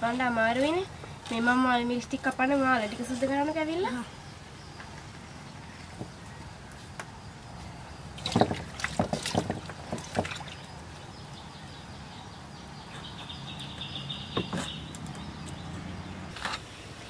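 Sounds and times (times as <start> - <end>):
splashes and knocks in metal basin: 8.2 - 10.7.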